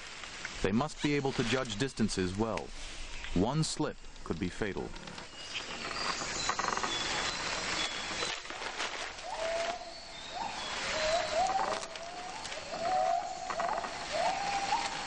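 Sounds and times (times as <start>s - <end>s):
insect chorus: 4.8s - 15.0s.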